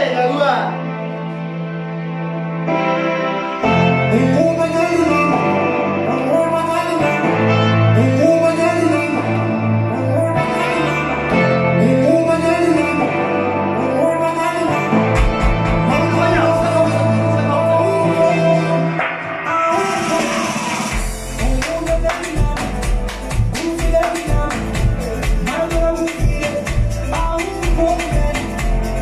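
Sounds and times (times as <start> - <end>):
dance music with singing: 0.0 - 29.0
heavy bass line: 3.6 - 19.0, 19.7 - 29.0.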